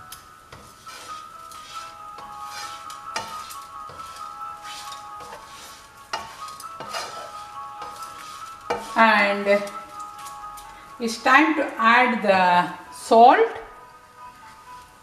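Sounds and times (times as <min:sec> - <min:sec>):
background music: 0:00.0 - 0:15.0
spatula scraping frying pan: 0:00.5 - 0:10.7
spatula knocking against pan: 0:02.2 - 0:04.2, 0:06.1 - 0:09.0.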